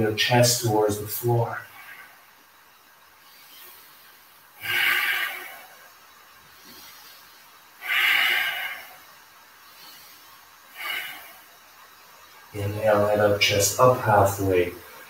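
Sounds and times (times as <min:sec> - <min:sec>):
man breathing deeply: 0:01.6 - 0:12.5.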